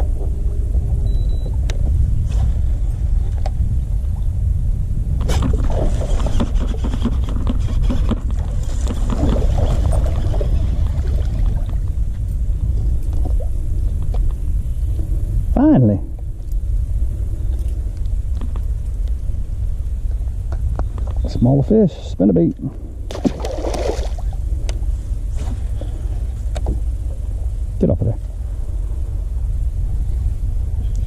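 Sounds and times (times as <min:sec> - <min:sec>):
low boat rumble: 0:00.0 - 0:31.0
fish splashing: 0:23.1 - 0:24.4.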